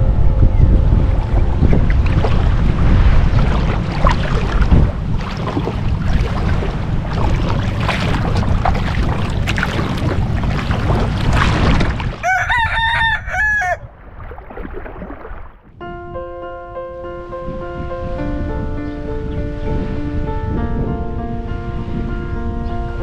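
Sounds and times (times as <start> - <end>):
wind rumbling on microphone: 0.0 - 23.0
lapping water: 1.6 - 12.4, 13.8 - 15.7
rooster crowing: 12.2 - 13.9.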